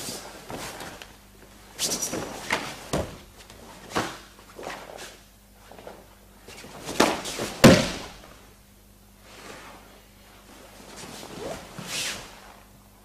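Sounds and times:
thuds and slaps on a mat: 1.9 - 4.3, 6.8 - 8.3.

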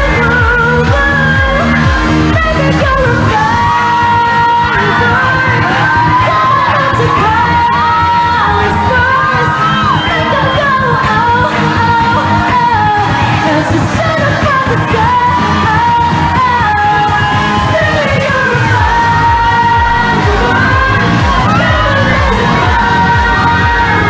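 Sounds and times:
person singing: 0.0 - 24.0
pop song with band: 0.0 - 24.0.

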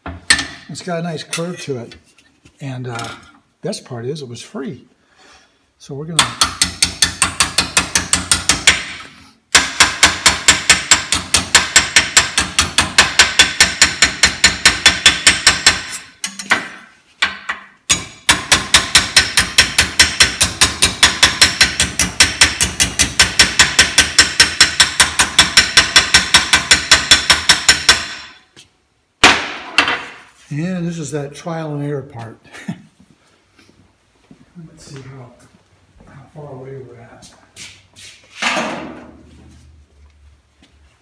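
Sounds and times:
hammer striking sheet metal: 6.2 - 28.5, 29.2 - 30.2.

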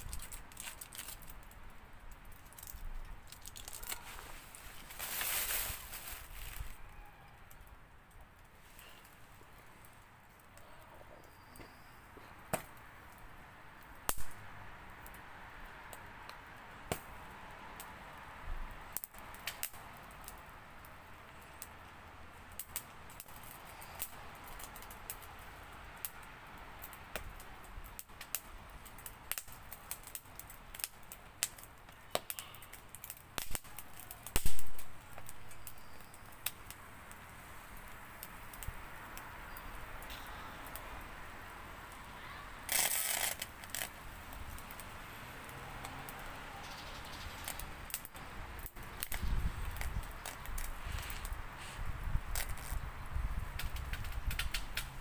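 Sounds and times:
rush of flame: 0.0 - 6.8, 26.8 - 46.4, 47.4 - 55.0
wood fire crackling and popping: 0.0 - 55.0.

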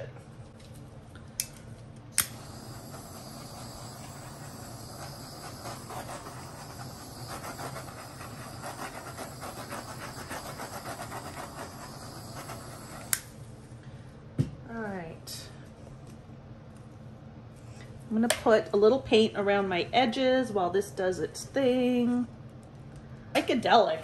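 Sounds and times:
torch igniting click: 1.4 - 13.4
torch flame hissing: 2.0 - 13.6.

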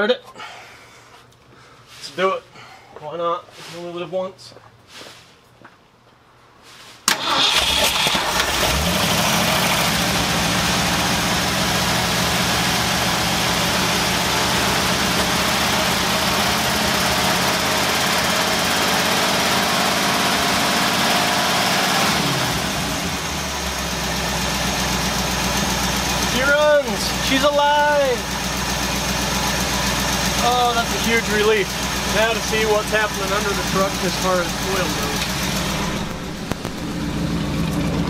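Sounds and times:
pickup truck engine starting and idling: 7.1 - 38.0.

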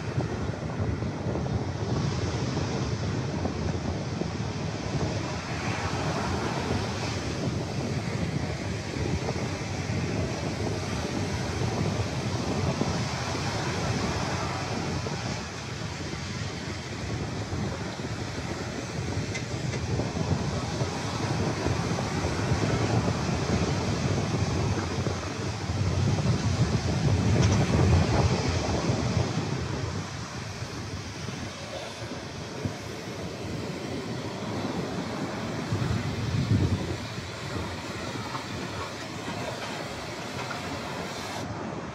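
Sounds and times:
surf washing up a sandy beach: 0.0 - 41.9
wind buffeting the microphone: 0.0 - 41.9.

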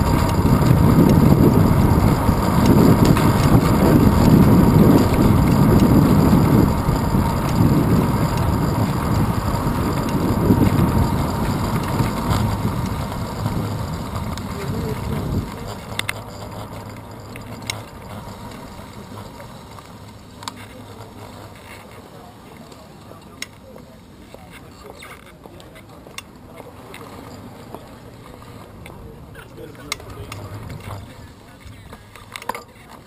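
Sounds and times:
wind rushing over microphone: 0.0 - 16.2.

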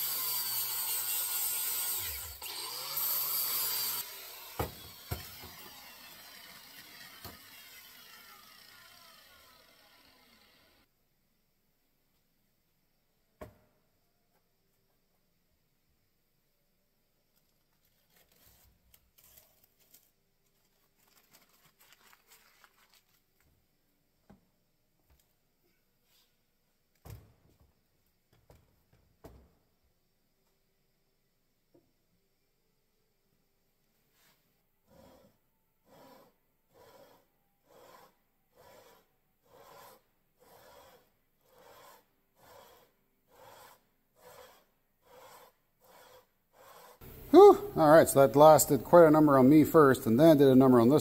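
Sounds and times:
lapping plate rasping on metal: 34.9 - 47.2.

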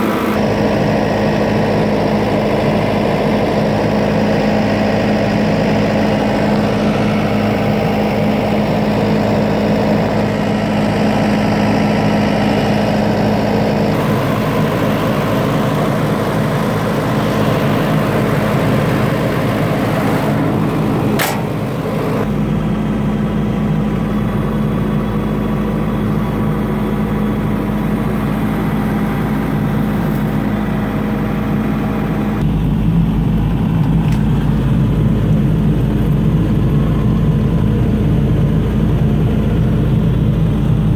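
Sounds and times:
diesel engine idling: 0.0 - 40.9
sharp click: 21.2 - 21.6.

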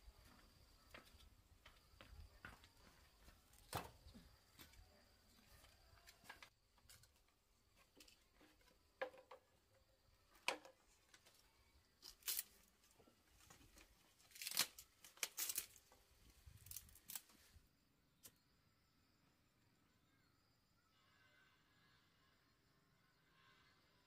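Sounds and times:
dry bamboo cracking and splintering: 12.0 - 17.6.

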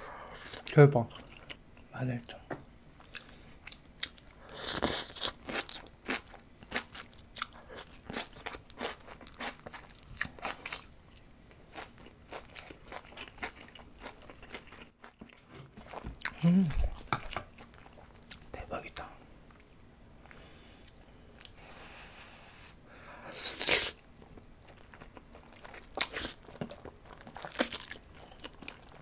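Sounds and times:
crunching and chewing: 3.0 - 18.5, 23.6 - 29.0
person humming: 16.3 - 17.0.

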